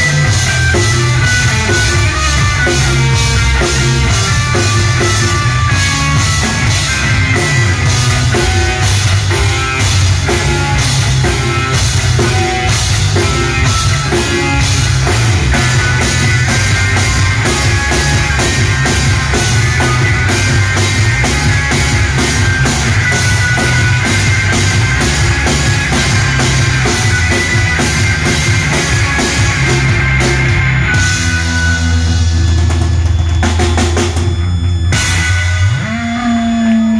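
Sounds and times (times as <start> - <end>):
live rock band playing: 0.0 - 36.9.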